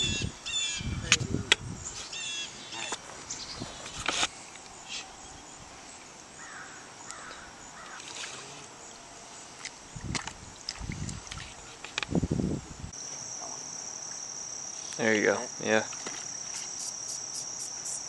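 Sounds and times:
bird calls: 0:00.0 - 0:01.2, 0:01.9 - 0:05.7, 0:06.4 - 0:08.3.

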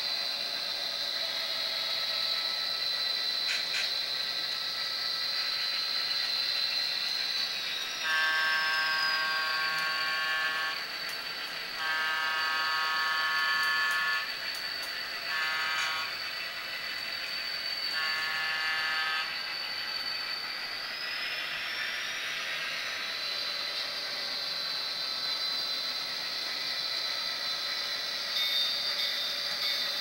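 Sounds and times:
steady high-pitched whine: 0:00.0 - 0:30.0
model locomotive horn blasts: 0:08.0 - 0:10.8, 0:11.8 - 0:14.3, 0:15.3 - 0:16.1, 0:17.9 - 0:19.4.

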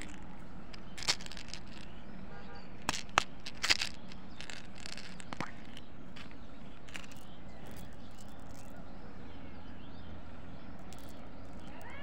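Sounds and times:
plastic container clicks and rattles: 0:00.0 - 0:00.2, 0:00.8 - 0:01.9, 0:02.8 - 0:05.8, 0:06.8 - 0:08.7, 0:10.8 - 0:11.7.

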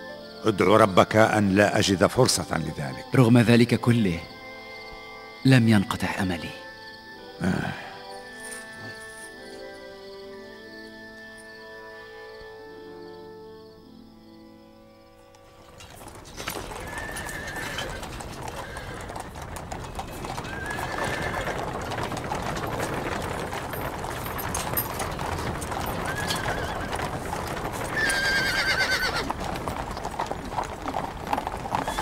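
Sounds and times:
hooves clattering on gravel: 0:00.5 - 0:04.3, 0:08.3 - 0:09.8, 0:15.2 - 0:32.0
wheels rattling over gravel: 0:15.4 - 0:32.0
horse neighing: 0:15.6 - 0:32.0
horse whinnying: 0:15.6 - 0:32.0.

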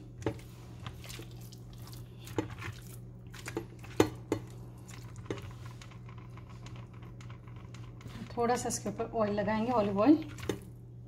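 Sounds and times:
squelching of wet meat: 0:00.4 - 0:04.0.

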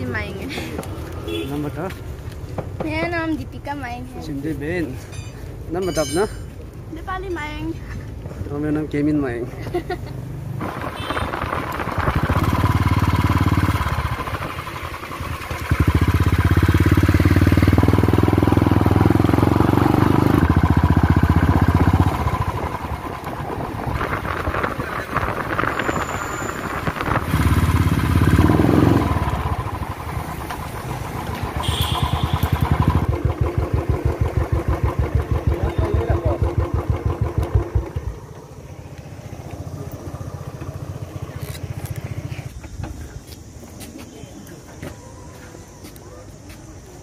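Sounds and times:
motorcycle engine revving: 0:10.3 - 0:42.5.

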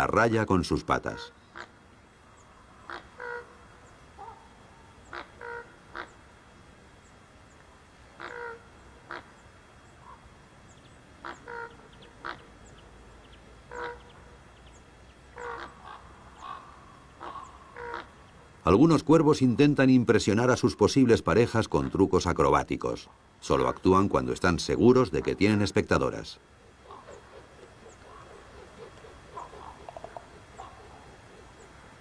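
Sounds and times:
ravens calling harshly: 0:00.0 - 0:01.8, 0:02.4 - 0:06.2, 0:08.2 - 0:09.4, 0:11.2 - 0:14.6, 0:15.3 - 0:32.0
small birds chirping: 0:07.0 - 0:18.9, 0:23.1 - 0:31.8.

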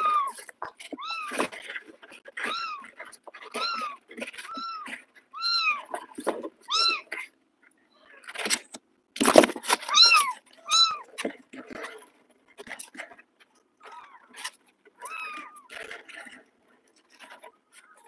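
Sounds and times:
kittens mewing: 0:00.0 - 0:07.3, 0:09.8 - 0:11.9, 0:13.8 - 0:16.4
kittens scuffling in cardboard box: 0:00.0 - 0:07.3, 0:08.3 - 0:18.0.

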